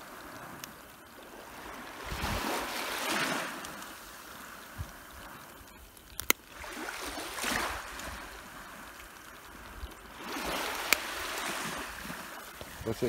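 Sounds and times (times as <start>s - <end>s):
small waves washing ashore: 0.0s - 13.0s
sharp clicks: 5.6s - 6.4s.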